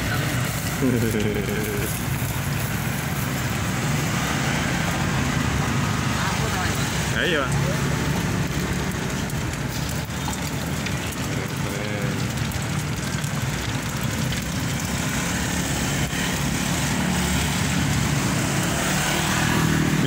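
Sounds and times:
food deep-frying in hot oil: 0.0 - 20.0.

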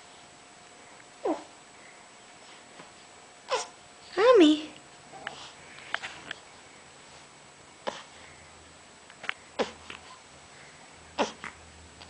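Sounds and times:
baby grunting and squeaking: 3.5 - 3.7, 11.2 - 11.6.

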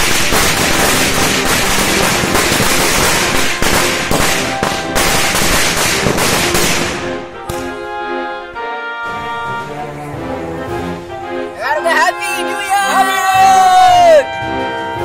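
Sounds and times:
firecrackers popping and crackling: 0.0 - 7.8
music: 0.0 - 15.0.

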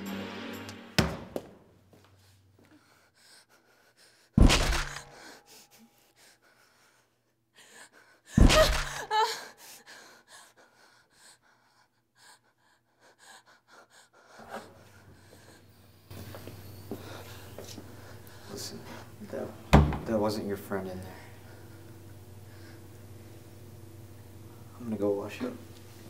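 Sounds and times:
sudden loud hits: 0.0 - 1.4
soft breathing: 2.0 - 4.4, 5.0 - 8.3, 9.4 - 19.4, 21.0 - 23.6
woman's sharp gasping cry: 7.6 - 10.6.

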